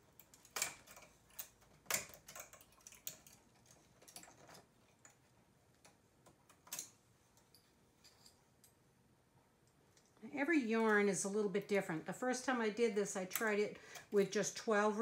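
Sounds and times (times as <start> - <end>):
metal tools clicking on needles: 13.2 - 14.2.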